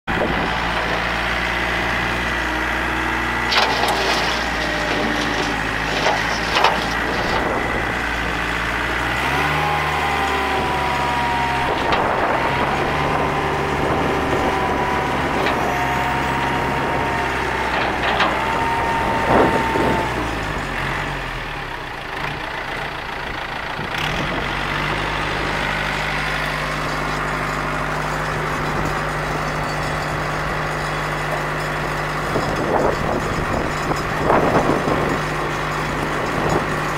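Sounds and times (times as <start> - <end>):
tractor diesel engine running: 0.1 - 36.9.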